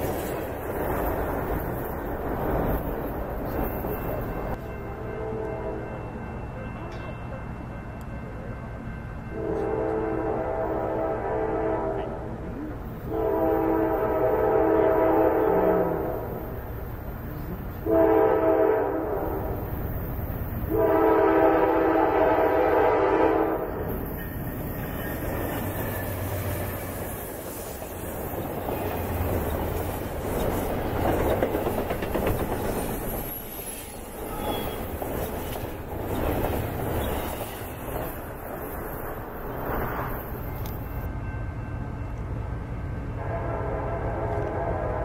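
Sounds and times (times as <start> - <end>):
freight train wheels rumbling: 0.0 - 45.0
locomotive air horn: 4.9 - 5.8, 9.4 - 12.4, 13.1 - 16.3, 17.8 - 19.4, 20.7 - 23.8, 34.2 - 34.9, 43.2 - 45.0.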